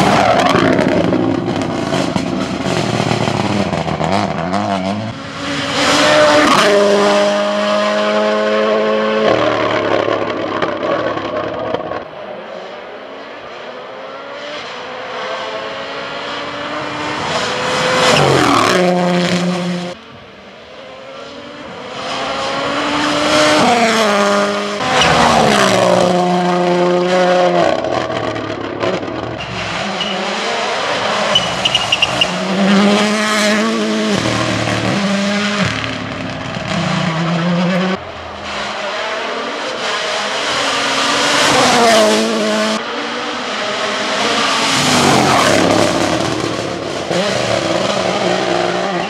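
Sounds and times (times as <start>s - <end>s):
car engine revving hard: 0.0s - 10.8s, 21.2s - 49.0s
tyres squealing: 31.2s - 32.5s.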